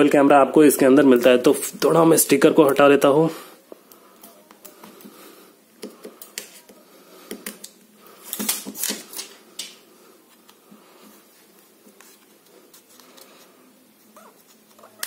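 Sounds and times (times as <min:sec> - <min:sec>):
plastic film crinkling: 0:07.6 - 0:09.8.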